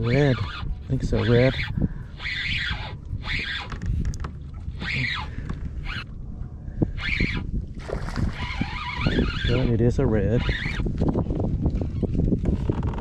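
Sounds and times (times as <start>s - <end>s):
fishing reel drag buzzing: 0.0s - 6.1s, 6.8s - 7.5s, 8.2s - 10.9s
wind rumble on microphone: 0.0s - 13.0s.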